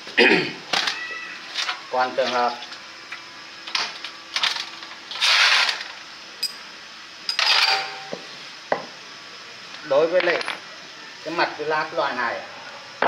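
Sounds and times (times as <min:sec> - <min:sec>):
metal part scraping in oil: 0:05.1 - 0:05.8
sharp metallic clinks: 0:06.4 - 0:06.6.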